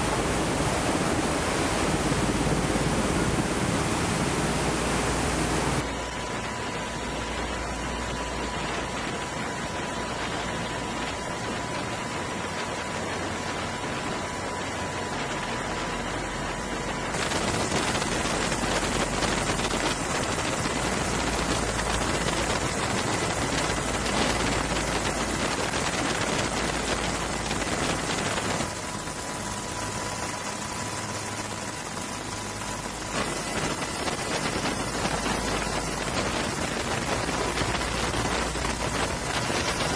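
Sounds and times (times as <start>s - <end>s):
crackling noise: 0.0s - 5.8s, 17.1s - 39.9s
steady rushing noise: 0.0s - 39.9s.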